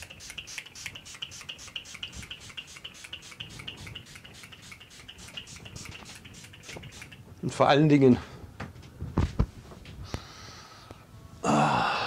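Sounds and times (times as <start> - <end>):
spray bottle squirts: 0.0 - 7.2.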